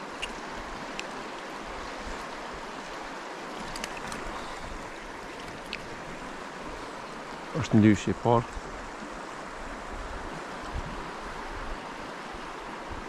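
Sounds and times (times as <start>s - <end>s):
river water rushing: 0.0s - 13.0s
faint high ticks: 0.1s - 1.2s, 5.4s - 5.9s.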